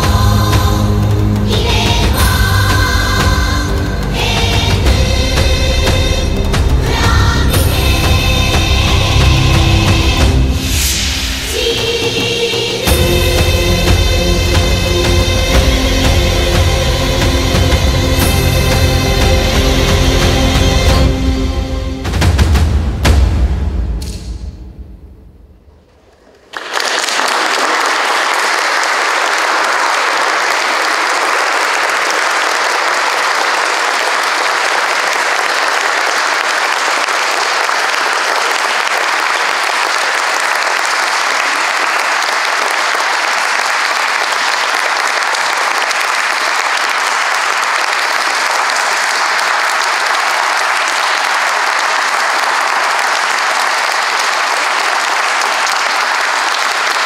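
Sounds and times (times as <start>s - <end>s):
music: 0.0s - 25.6s
audience applauding: 25.9s - 57.0s.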